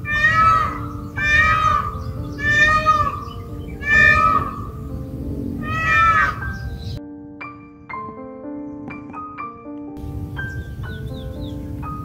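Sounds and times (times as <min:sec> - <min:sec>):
peacock calling: 0:00.0 - 0:07.0
background music: 0:00.0 - 0:12.0.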